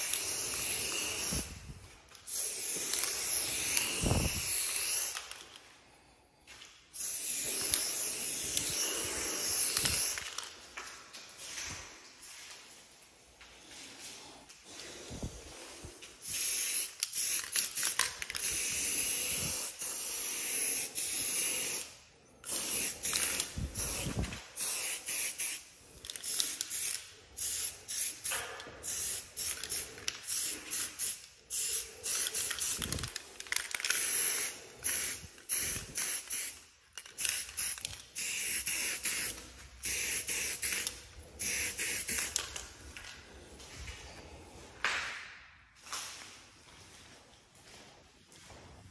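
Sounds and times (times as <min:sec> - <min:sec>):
aerosol spray can hissing: 0:16.2 - 0:21.9, 0:22.5 - 0:25.7, 0:34.0 - 0:36.6, 0:37.2 - 0:42.4.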